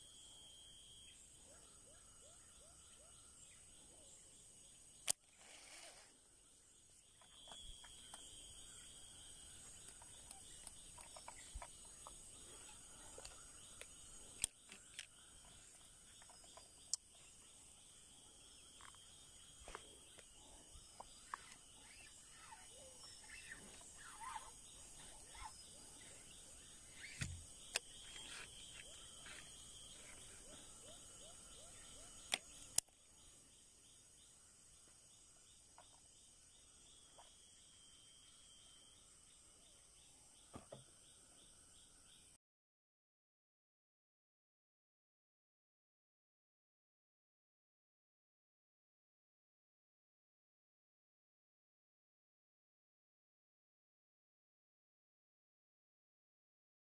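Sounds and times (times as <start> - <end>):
bird chirps: 0.0 - 5.8, 6.4 - 42.4
insect buzzing: 0.0 - 42.3.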